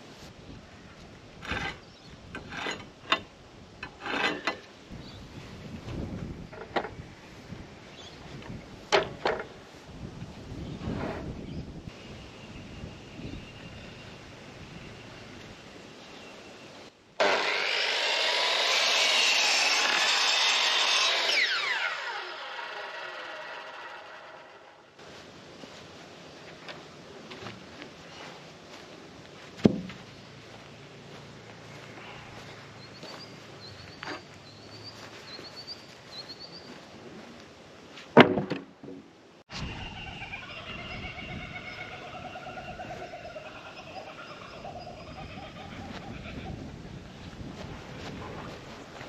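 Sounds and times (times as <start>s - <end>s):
electric mitre saw cutting wood: 17.2s - 24.9s
wooden board clattering onto boards: 38.1s - 39.1s.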